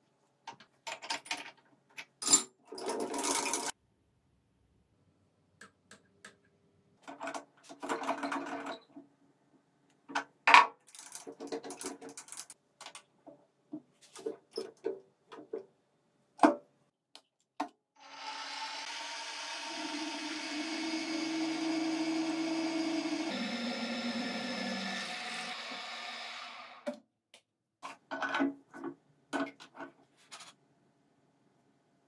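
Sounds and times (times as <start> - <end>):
metal tools clinking and clattering: 1.0 - 3.7
milling machine motor whine: 18.0 - 26.8.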